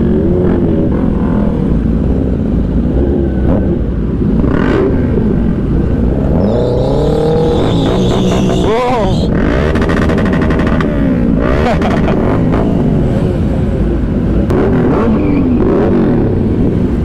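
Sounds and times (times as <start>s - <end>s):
sport bike engine revving: 5.9s - 12.8s.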